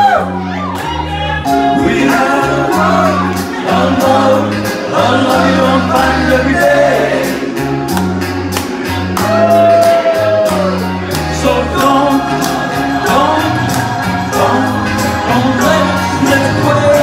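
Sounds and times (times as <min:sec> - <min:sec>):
backing track with drum beat: 0:00.0 - 0:17.0
bass line: 0:00.0 - 0:17.0
man singing into a microphone: 0:01.6 - 0:07.2, 0:11.3 - 0:17.0.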